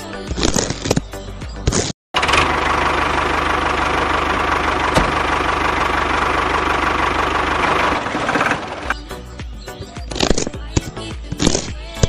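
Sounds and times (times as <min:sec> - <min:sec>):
toy tractor engine chugging: 0:02.2 - 0:09.1.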